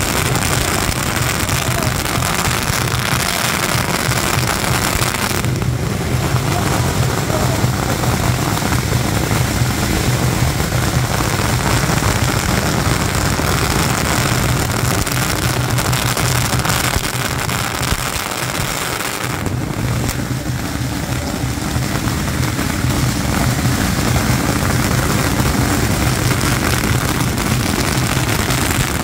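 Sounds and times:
firecrackers crackling: 0:00.0 - 0:29.0.

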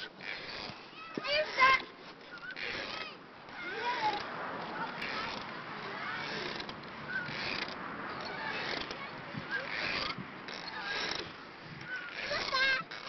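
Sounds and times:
faint children's voices: 0:00.3 - 0:13.0
wind noise on microphone: 0:08.6 - 0:11.9.

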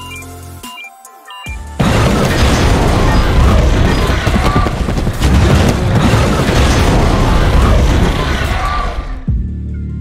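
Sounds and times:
cinematic music: 0:00.0 - 0:10.0.

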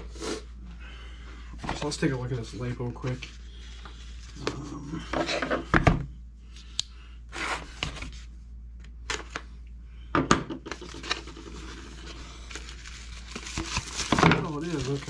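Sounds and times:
packaging rustling: 0:10.8 - 0:15.0.

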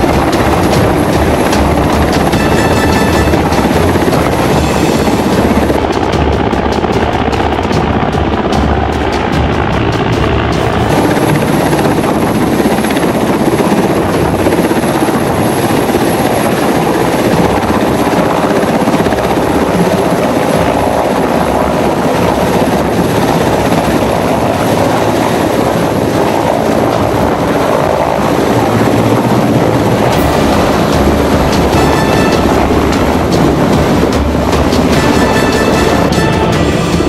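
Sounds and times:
thin high whine: 0:00.0 - 0:06.0
helicopter rotor and engine noise: 0:00.0 - 0:37.0.

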